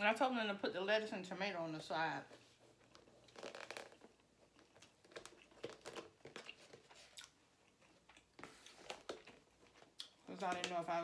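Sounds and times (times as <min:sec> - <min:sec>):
faint chewing: 0:02.6 - 0:10.8
mouth clicks and crackles: 0:02.9 - 0:11.0.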